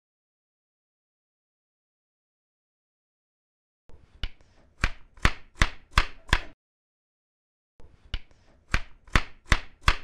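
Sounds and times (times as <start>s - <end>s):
knife chopping on cutting board: 4.2s - 6.6s, 8.7s - 10.0s.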